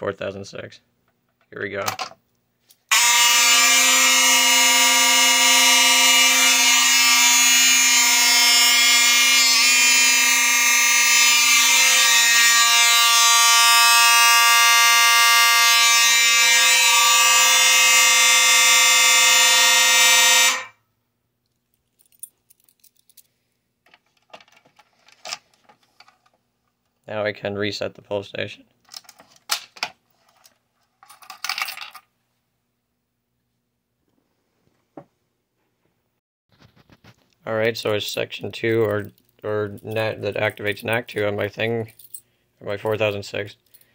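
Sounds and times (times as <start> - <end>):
buzzy fire alarm horn: 2.9 - 20.9.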